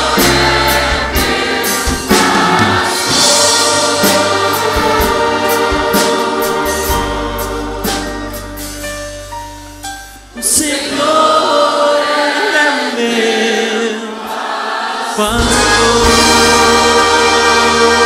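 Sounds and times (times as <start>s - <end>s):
instrumental accompaniment: 0.0s - 12.3s, 14.2s - 18.0s
man singing worship song: 10.4s - 14.2s, 15.0s - 18.0s.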